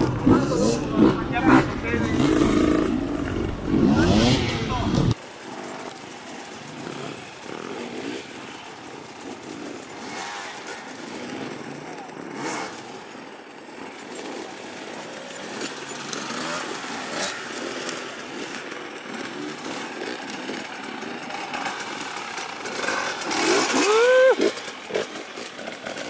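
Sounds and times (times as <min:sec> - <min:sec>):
dirt bike engine running: 0:00.0 - 0:26.0
voices: 0:00.0 - 0:26.0
person shouting: 0:23.7 - 0:24.5.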